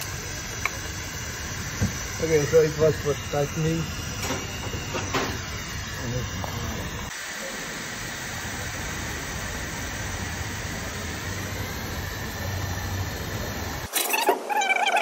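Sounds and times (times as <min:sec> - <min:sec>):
air equipment hissing with hum: 0:00.0 - 0:15.0.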